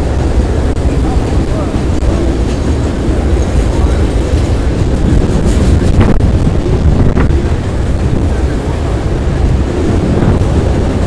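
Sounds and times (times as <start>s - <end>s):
train wheels rumbling on rail: 0.0s - 11.0s
wind buffeting microphone: 0.0s - 11.0s.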